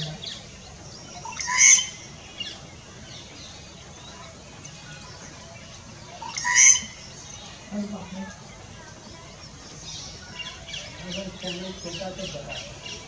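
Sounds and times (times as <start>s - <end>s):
treepie calls: 1.1s - 2.1s, 6.1s - 7.0s.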